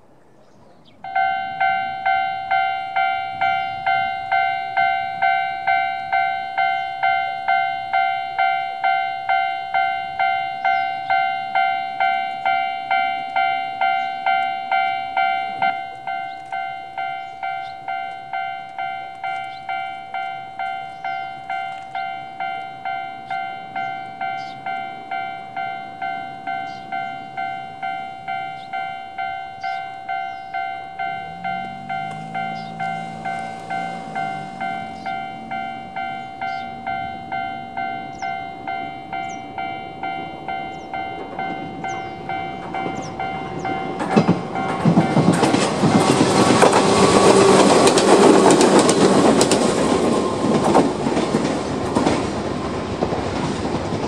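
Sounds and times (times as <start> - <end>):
level crossing warning chime: 1.0 - 52.2.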